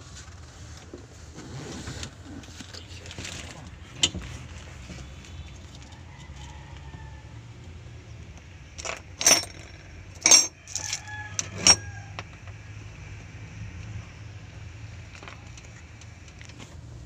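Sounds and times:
sharp metal clinks: 8.8s - 11.8s.

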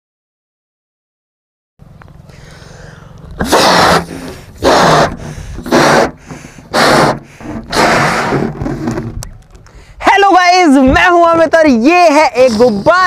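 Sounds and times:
quick inhales: 2.3s - 8.4s, 9.7s - 10.0s
breaths blown into balloon: 2.4s - 9.1s.

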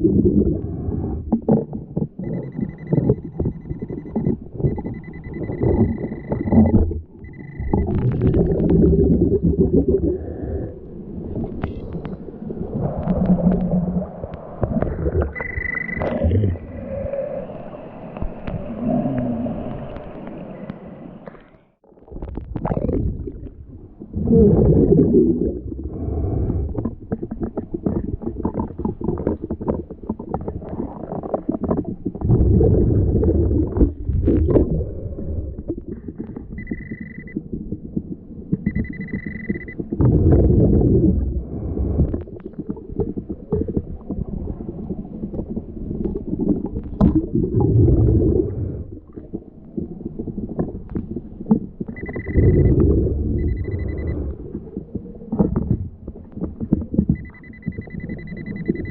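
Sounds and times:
water churning underwater: 0.0s - 58.9s
metal detector beeps: 2.2s - 8.0s, 15.3s - 16.4s, 36.5s - 37.4s, 38.6s - 39.8s, 52.0s - 52.8s, 53.4s - 54.3s, 57.1s - 58.9s.

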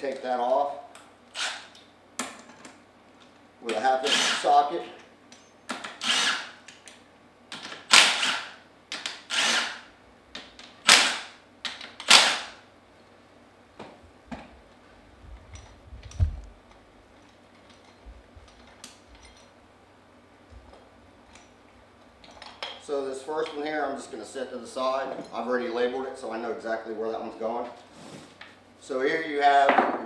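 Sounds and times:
impact wrench bursts: 1.3s - 1.8s, 3.8s - 4.6s, 5.7s - 6.7s, 7.6s - 9.9s, 10.8s - 12.6s.

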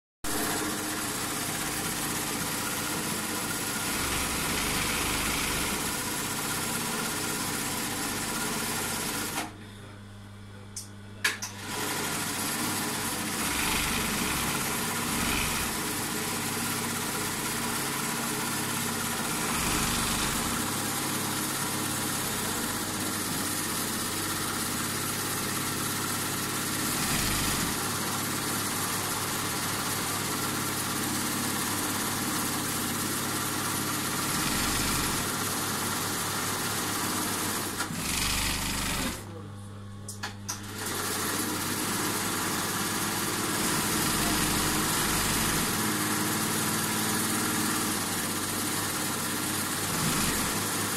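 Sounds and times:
sewing machine running: 0.3s - 9.5s, 11.4s - 39.3s, 40.5s - 50.9s
sewing machine clicks: 49.5s - 50.9s.

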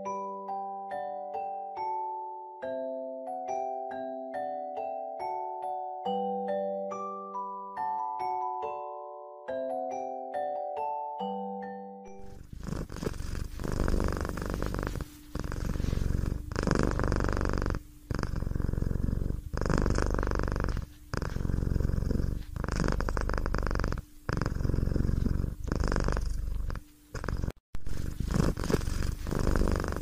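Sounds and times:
cat purring: 12.1s - 30.0s.

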